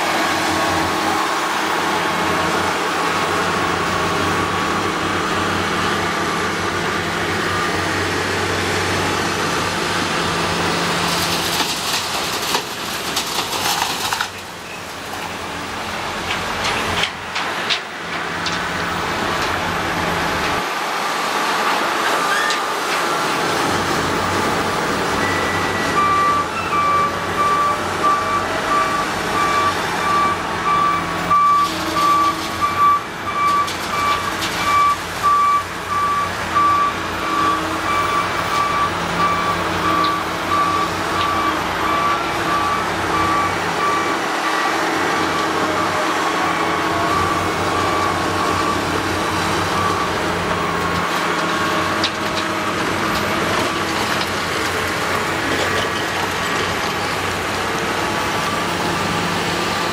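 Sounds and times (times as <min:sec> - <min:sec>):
diesel engines running: 0:00.0 - 0:59.9
reversing alarm beeps: 0:25.2 - 0:44.7.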